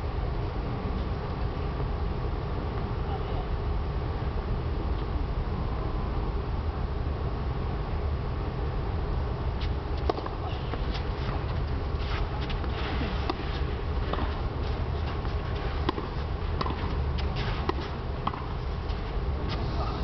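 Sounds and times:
steady low rumble: 0:00.0 - 0:20.0
tennis balls struck by rackets: 0:10.0 - 0:19.6.

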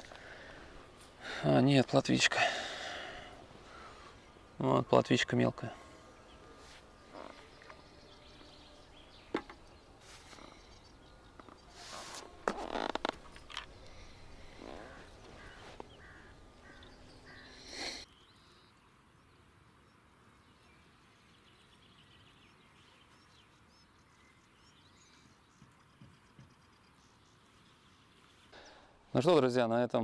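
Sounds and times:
faint birds calling: 0:00.0 - 0:29.4
fishing tackle clicks and rustles: 0:11.4 - 0:14.0.

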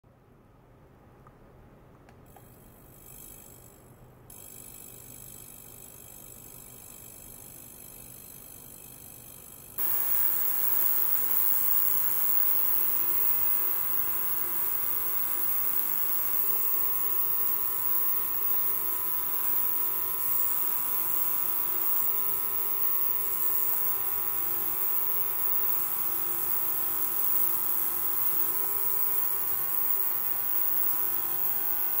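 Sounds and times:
ultrasonic cleaner buzzing: 0:09.8 - 0:32.0.

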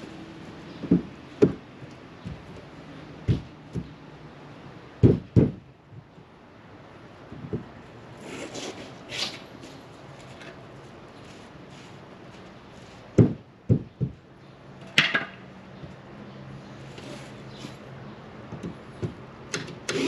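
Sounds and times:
wooden knocks and thumps: 0:00.7 - 0:04.0, 0:05.0 - 0:06.1, 0:07.3 - 0:07.7, 0:13.2 - 0:14.2, 0:14.9 - 0:16.0, 0:18.5 - 0:19.2.

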